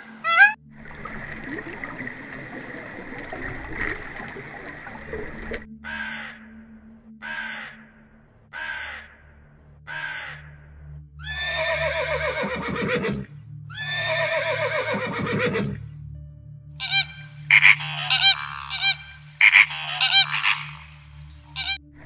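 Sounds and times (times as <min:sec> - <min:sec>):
horse neighing: 0:11.2 - 0:15.8.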